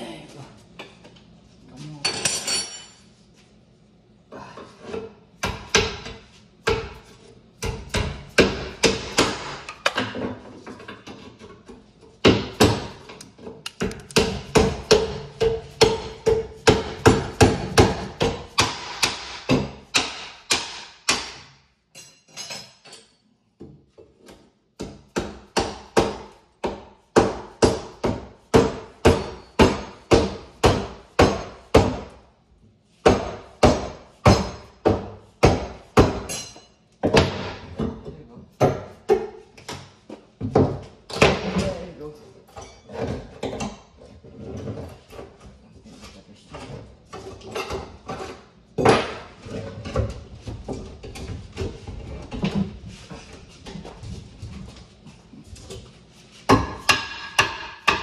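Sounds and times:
hammer striking: 13.7s - 21.5s, 56.5s - 58.0s.

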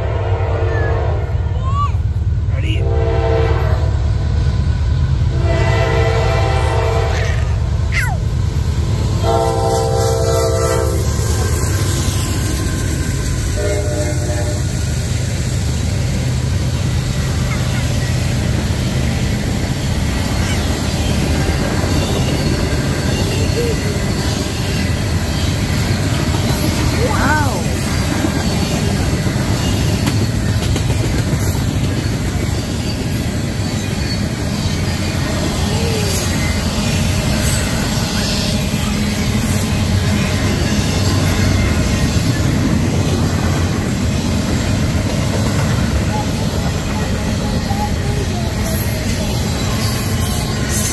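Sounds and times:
locomotive air horn: 0.0s - 1.4s, 2.8s - 4.0s, 5.3s - 7.5s, 9.2s - 11.1s, 13.6s - 14.8s
passing train rumble: 0.0s - 50.9s.

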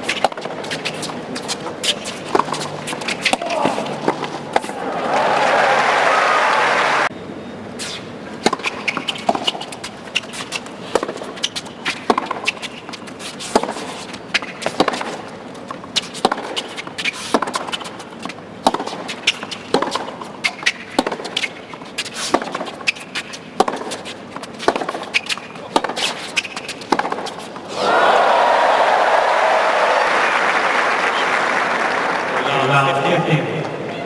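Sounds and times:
racquets striking tennis ball: 0.0s - 5.6s, 7.9s - 27.8s
applause: 4.9s - 7.1s, 28.6s - 33.0s
ball bouncing on hard court: 8.4s - 13.8s, 14.4s - 15.2s, 16.2s - 21.5s, 23.6s - 27.4s.

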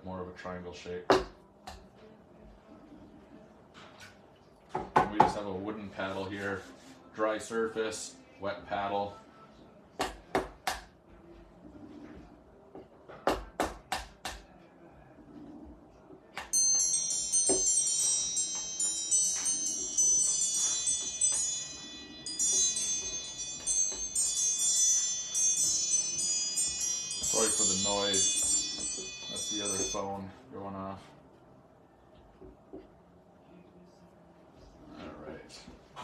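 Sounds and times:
chimes ringing: 16.5s - 30.4s.

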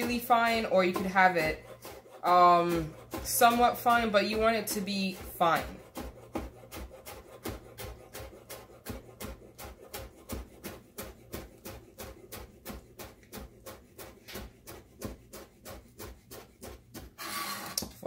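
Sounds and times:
knife chopping on cutting board: 0.0s - 18.0s.

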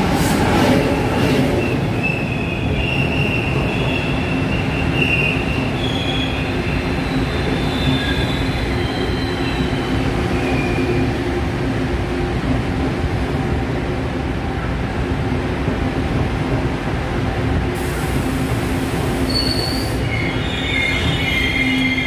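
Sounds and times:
train coaches rumbling past: 0.0s - 22.0s
wheel and brake squeal: 2.0s - 10.9s, 19.2s - 22.0s.

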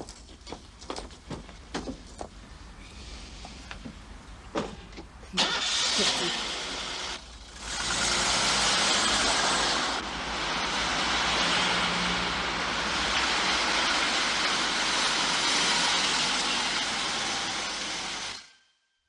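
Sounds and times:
car engine and tyre noise: 0.1s - 18.5s.

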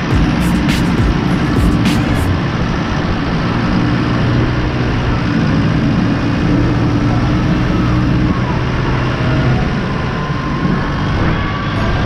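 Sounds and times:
tractor diesel engine running: 0.0s - 12.0s.

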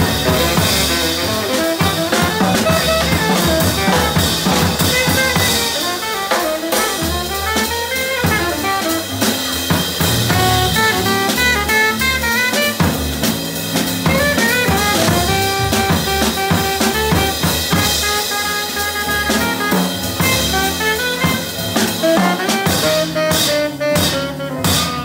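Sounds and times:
double bass: 0.0s - 25.0s
drum kit: 0.0s - 25.0s
tenor saxophone: 0.0s - 25.0s.

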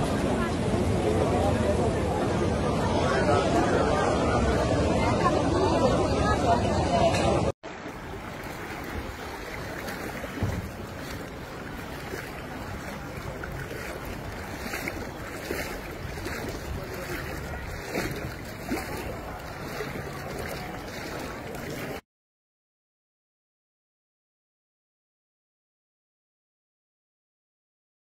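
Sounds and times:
floodwater rushing: 0.0s - 22.0s
wind: 0.0s - 22.0s
wind buffeting microphone: 6.1s - 22.0s.

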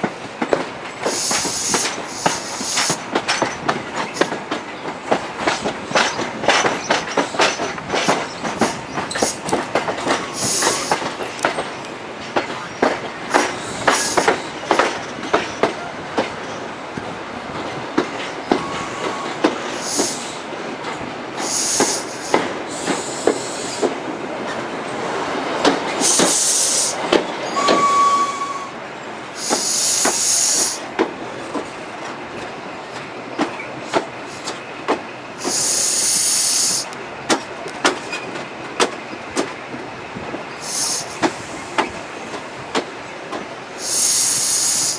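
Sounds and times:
train wheels clicking over rail joints: 0.0s - 28.0s, 29.2s - 44.9s
train wheel squeals: 1.0s - 4.8s, 5.6s - 9.5s, 10.1s - 15.8s, 18.2s - 20.4s, 21.4s - 23.9s, 25.9s - 28.8s, 29.4s - 30.8s, 35.4s - 36.9s, 38.0s - 38.4s, 40.5s - 42.4s, 43.8s - 44.9s.

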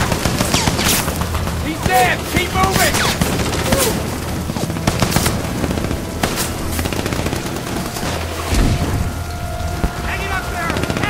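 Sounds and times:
sharp gunshots: 0.0s - 4.1s, 4.7s - 7.4s
rifle and machine-gun fire: 0.0s - 8.3s.

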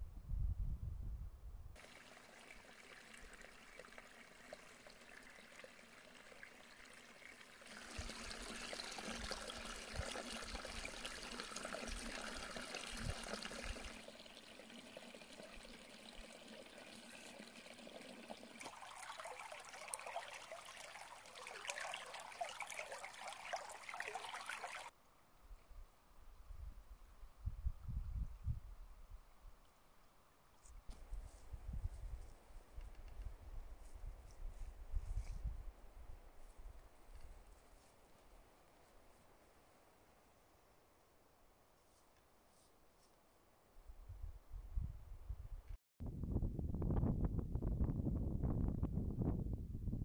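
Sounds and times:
brook trickling and gurgling: 1.8s - 24.9s.

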